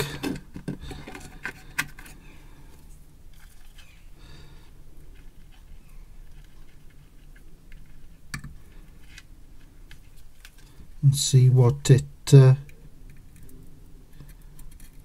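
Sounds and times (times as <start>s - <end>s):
faint rustling: 0.0s - 11.0s.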